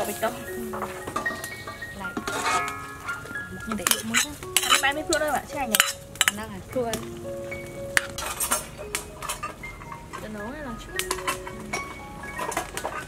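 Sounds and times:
background music: 0.0s - 13.0s
metal ladle scraping pot: 0.2s - 6.5s, 11.0s - 13.0s.

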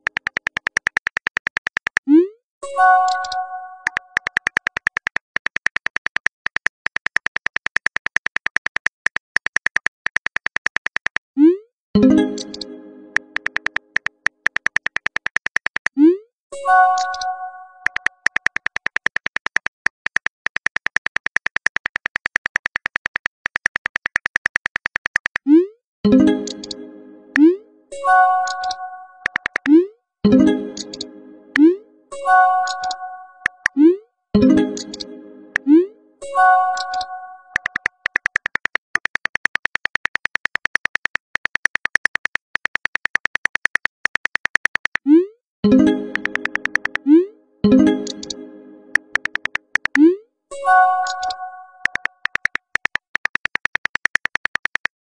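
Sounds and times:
phone keyboard clicks: 0.0s - 2.1s, 3.1s - 11.2s, 12.4s - 16.0s, 17.0s - 25.4s, 28.4s - 29.7s, 36.8s - 45.0s, 46.1s - 47.0s, 48.0s - 50.0s, 51.0s - 55.0s
text message chime: 2.6s - 4.1s, 12.0s - 13.5s, 16.6s - 17.9s, 26.1s - 29.3s, 30.3s - 33.6s, 34.4s - 37.5s, 45.7s - 49.4s, 50.5s - 52.0s.

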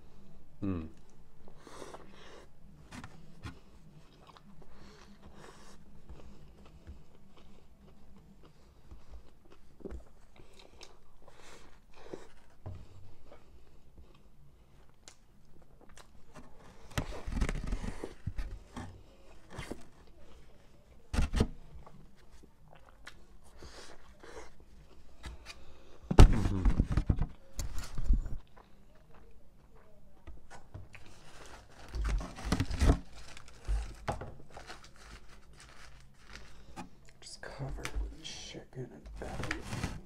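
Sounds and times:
person chewing food: 1.0s - 19.8s, 21.8s - 26.1s, 28.3s - 31.9s.

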